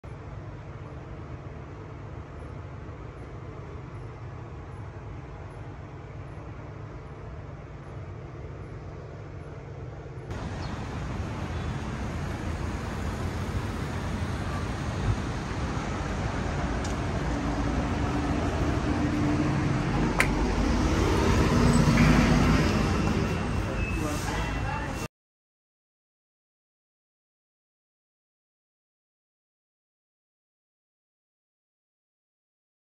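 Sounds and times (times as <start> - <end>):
city street traffic: 0.0 - 25.1.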